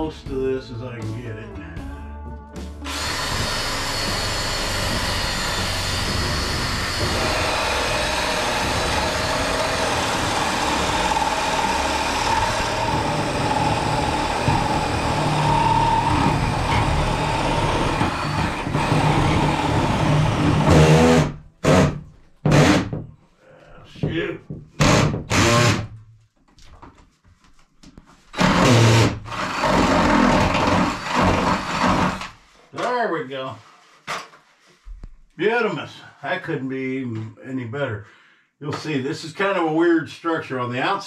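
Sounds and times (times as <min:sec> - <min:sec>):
cordless drill boring wood: 0:02.9 - 0:22.9, 0:24.8 - 0:25.9, 0:28.3 - 0:32.4.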